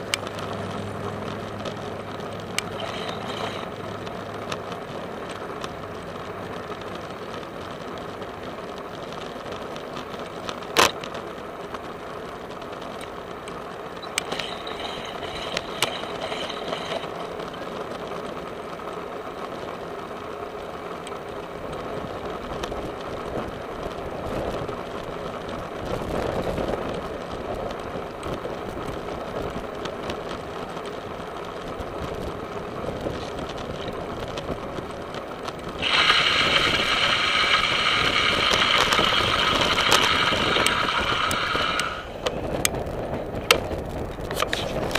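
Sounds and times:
bicycle tyres and drivetrain rolling: 0:00.0 - 0:44.9
small rattles: 0:12.6 - 0:18.5.

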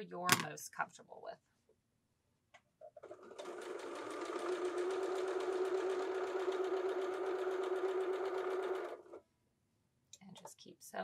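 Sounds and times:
electric sewing machine running: 0:03.0 - 0:09.2.

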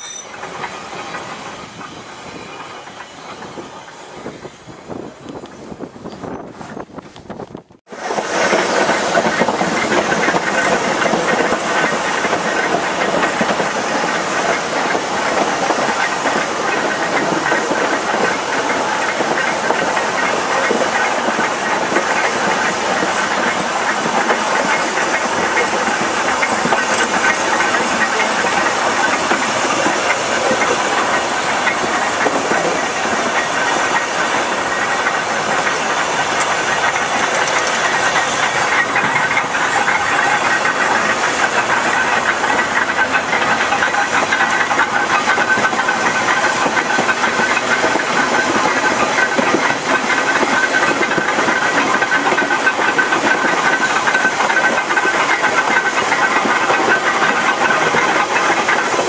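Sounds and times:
tram wheels rumbling on rail: 0:00.0 - 0:59.0
wind over microphone: 0:03.4 - 0:07.8.

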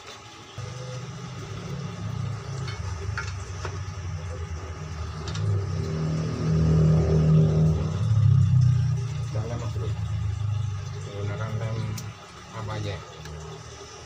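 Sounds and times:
engine humming: 0:00.6 - 0:14.0.

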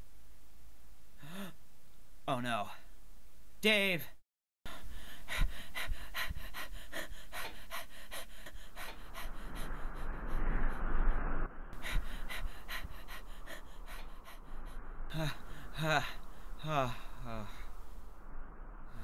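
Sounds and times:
man panting fast: 0:04.7 - 0:10.6, 0:11.8 - 0:17.5.

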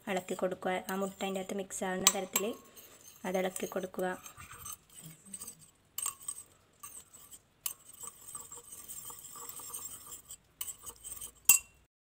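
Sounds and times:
spoon scraping glass bowl: 0:00.8 - 0:11.9
spoon clinking on glass bowl: 0:07.7 - 0:11.8.

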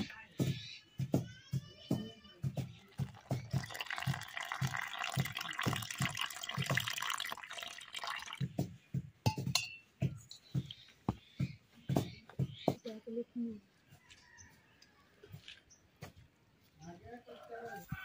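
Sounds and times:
water pouring and splashing: 0:02.6 - 0:08.7.

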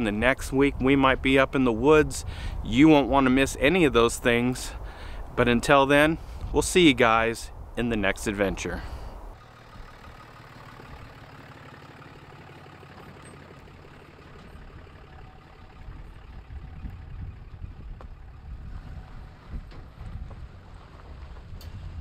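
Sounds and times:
diesel truck engine driving: 0:08.3 - 0:22.0.

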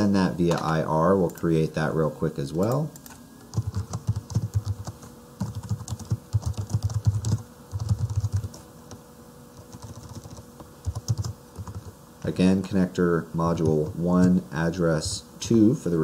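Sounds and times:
typing on computer keyboard: 0:03.0 - 0:08.6, 0:09.6 - 0:11.9.

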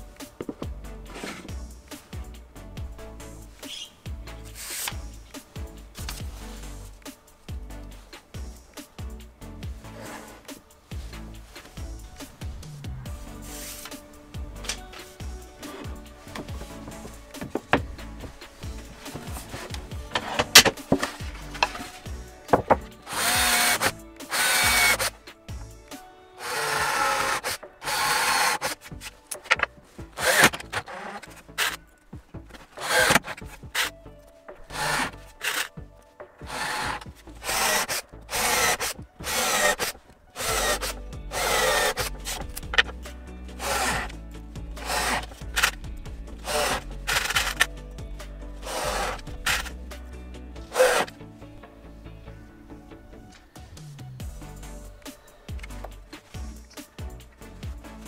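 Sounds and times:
cordless drill driving screws: 0:18.8 - 0:25.2, 0:26.4 - 0:31.8, 0:32.8 - 0:33.9, 0:34.7 - 0:35.8, 0:36.4 - 0:42.9, 0:43.6 - 0:44.2, 0:44.8 - 0:45.8, 0:46.4 - 0:47.7, 0:48.6 - 0:49.8, 0:50.7 - 0:51.1.

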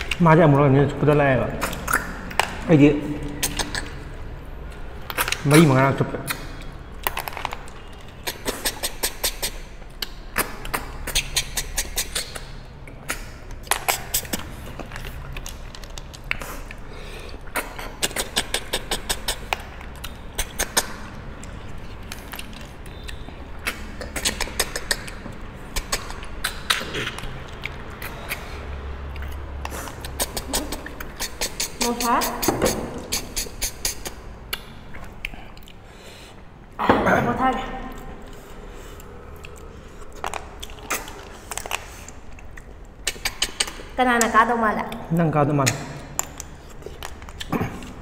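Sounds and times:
slurping snails from shells: 0:06.3 - 0:36.6, 0:38.2 - 0:44.0.

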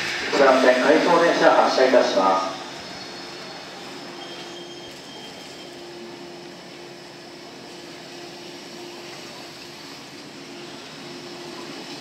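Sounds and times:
electric train humming and rumbling: 0:00.0 - 0:12.0.

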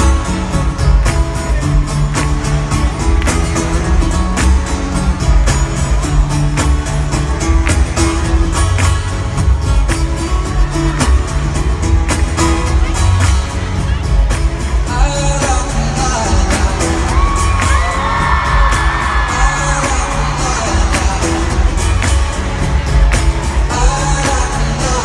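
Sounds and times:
acoustic guitar playing: 0:00.0 - 0:25.0
percussive beat: 0:00.0 - 0:25.0
crowd whooping: 0:17.1 - 0:19.9.

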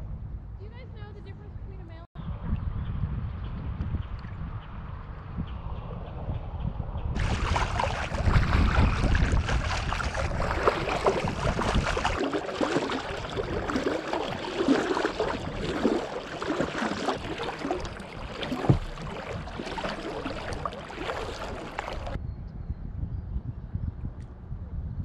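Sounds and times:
wind rumbling on microphone: 0:00.0 - 0:25.0
water splashing against kayak: 0:07.2 - 0:22.2.

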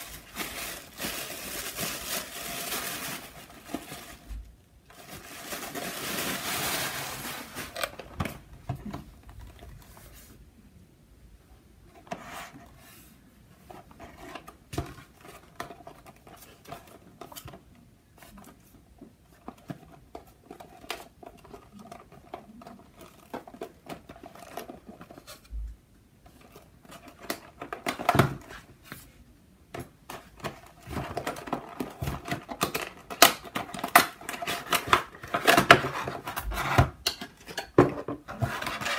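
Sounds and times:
paper wrapping rustling: 0:00.0 - 0:10.3, 0:30.1 - 0:37.3, 0:38.3 - 0:38.9.

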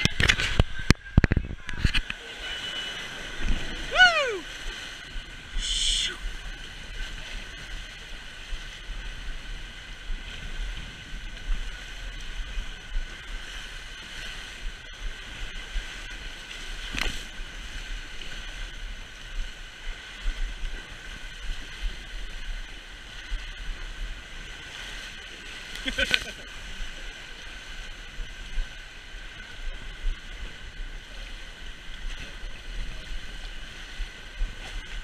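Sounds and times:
wind buffeting microphone: 0:00.0 - 0:02.2
water rushing on slide: 0:00.0 - 0:07.4.

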